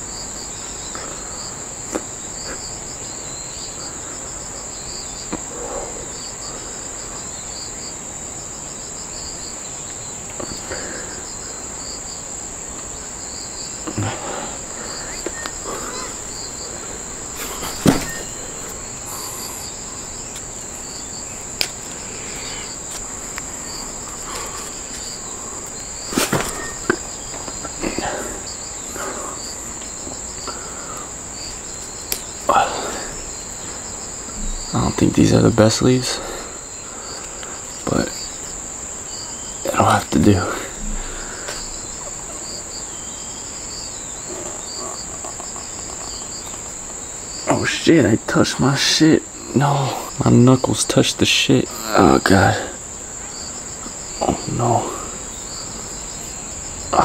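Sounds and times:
insects high steady note: 0.0 - 57.0
insects pulsing chirp: 0.0 - 57.0
close knocks and rustles: 17.3 - 18.8, 26.0 - 27.6.

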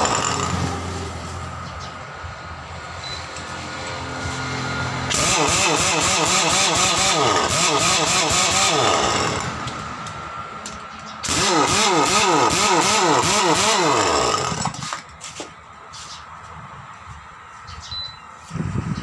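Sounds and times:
pneumatic impact wrench running: 0.0 - 1.3, 5.0 - 15.2.

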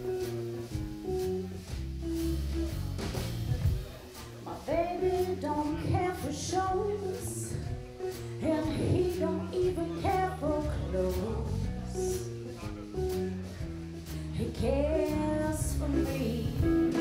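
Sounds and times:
jazz band playing: 0.0 - 17.0
woman singing: 4.5 - 12.3, 14.3 - 17.0.

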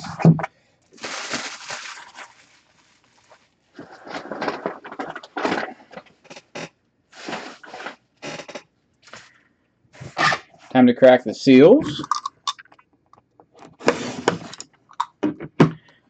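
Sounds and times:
plastic shrink wrap crinkling: 0.9 - 6.0.

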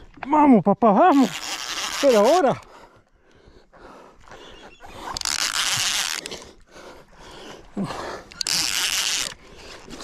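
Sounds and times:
fishing reel and rod handling: 1.1 - 2.7, 4.9 - 6.6, 8.2 - 10.0.

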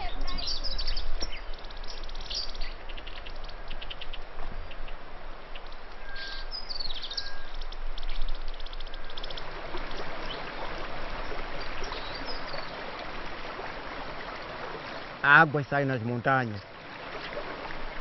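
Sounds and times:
birds chirping: 0.0 - 13.0, 14.2 - 18.0
bird whistles: 6.0 - 7.6
mountain stream rushing over rocks: 9.2 - 18.0.

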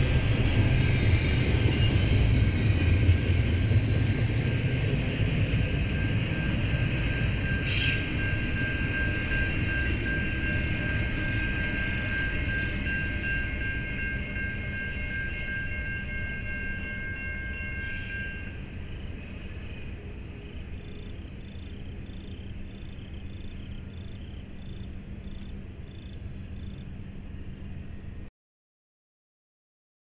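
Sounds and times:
freight train rumbling: 0.0 - 28.3
steady high whine: 0.0 - 28.3
faint pulsing high tone: 5.6 - 28.3.

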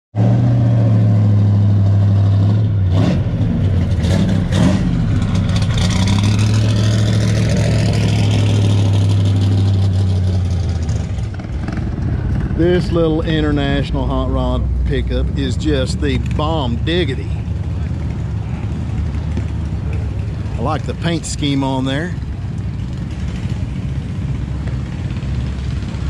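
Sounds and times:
vehicle engine running loudly: 0.2 - 26.0.

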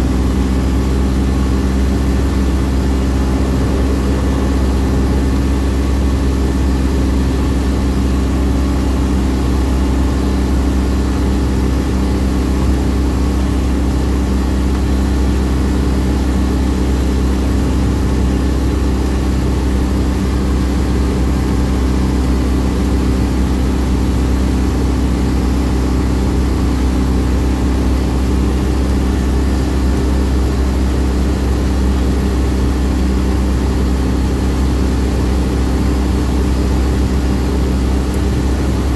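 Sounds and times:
vehicle driving on gravel: 0.0 - 23.1
engine and tyre drone: 0.0 - 38.9.

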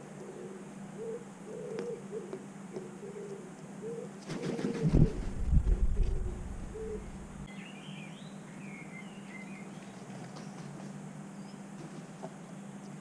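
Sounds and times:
pigeon cooing: 0.0 - 7.3
crow wings flapping: 4.2 - 6.5, 9.8 - 11.0.

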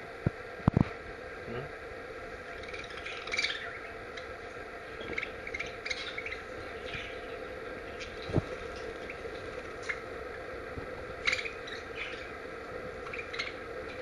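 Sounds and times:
budgerigars chirping: 2.5 - 10.1, 11.2 - 12.4, 13.0 - 14.0.

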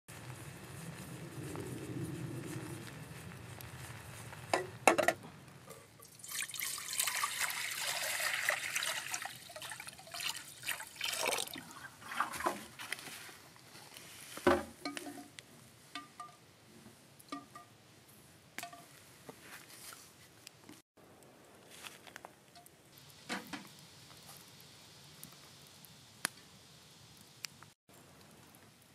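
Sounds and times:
water pouring into steel pot: 6.0 - 12.8.

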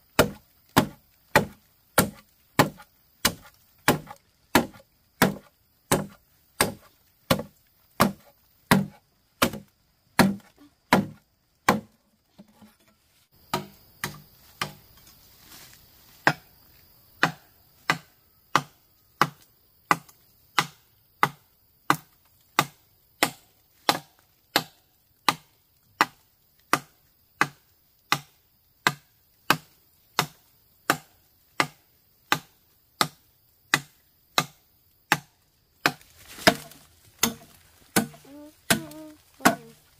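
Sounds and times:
blade chopping: 0.2 - 9.6, 35.8 - 39.8.

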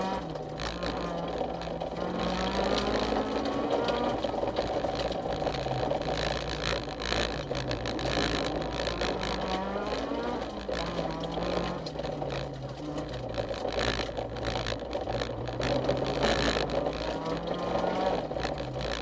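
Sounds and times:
car engine through gear changes: 0.0 - 19.0
gravel clicking against car body: 0.0 - 19.0.

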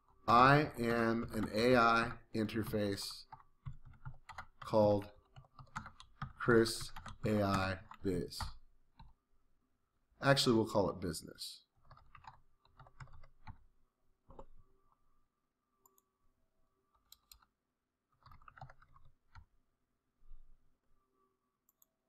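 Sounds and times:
keyboard typing: 0.5 - 9.2, 11.8 - 13.7, 14.3 - 14.6, 16.9 - 19.6.

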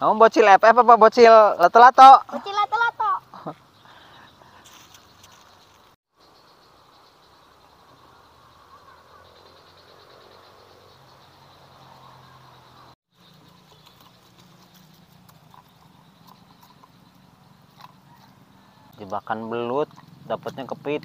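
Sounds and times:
frogs and insects calling: 0.3 - 21.0.

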